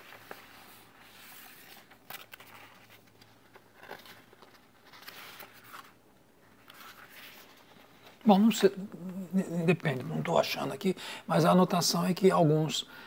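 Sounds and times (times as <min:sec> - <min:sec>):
paper sheets rustling: 0:00.0 - 0:08.7.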